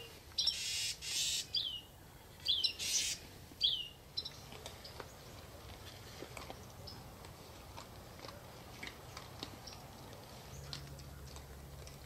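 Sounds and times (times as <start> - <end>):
bird chirping: 0.0 - 5.3.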